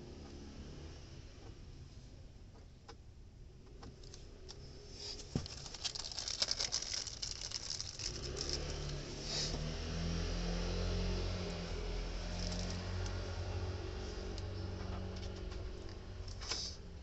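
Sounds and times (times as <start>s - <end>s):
low steady rumble: 0.0s - 17.0s
plastic wrapping crinkling: 5.2s - 9.0s, 12.3s - 13.1s.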